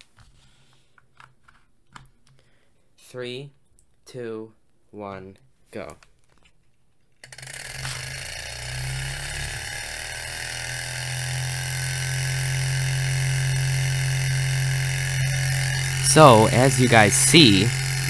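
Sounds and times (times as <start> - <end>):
stirling engine whirring: 7.7 - 18.0.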